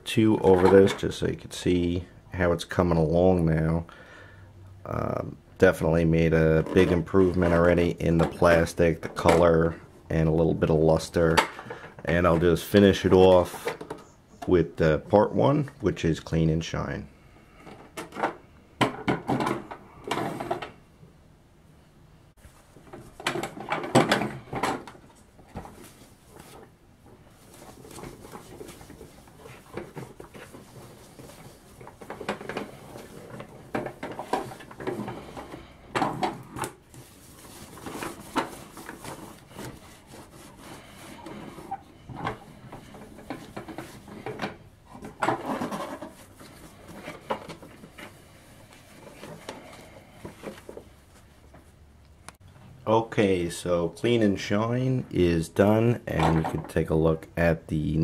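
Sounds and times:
paper towel rubbing plastic: 0:25.5 - 0:35.7, 0:36.5 - 0:44.3.

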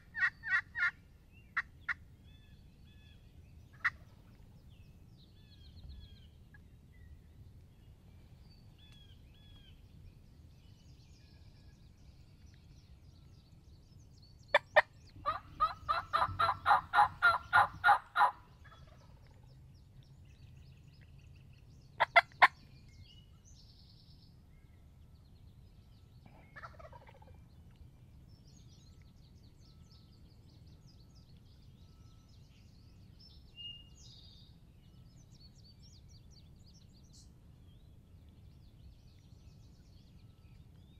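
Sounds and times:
turkey call clucks: 0:00.0 - 0:01.0, 0:03.8 - 0:04.2, 0:14.5 - 0:19.0, 0:22.0 - 0:22.6, 0:26.4 - 0:27.3
turkey call yelps: 0:00.1 - 0:01.0, 0:14.5 - 0:19.0, 0:22.0 - 0:22.6, 0:26.6 - 0:27.3.

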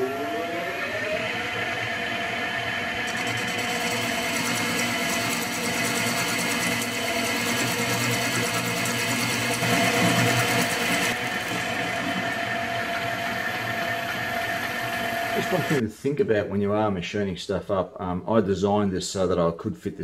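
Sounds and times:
metal lathe running: 0:00.0 - 0:15.8.

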